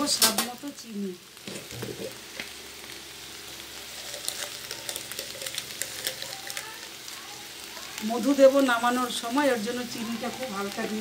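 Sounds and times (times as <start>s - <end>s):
vegetables sizzling in pan: 0.0s - 11.0s.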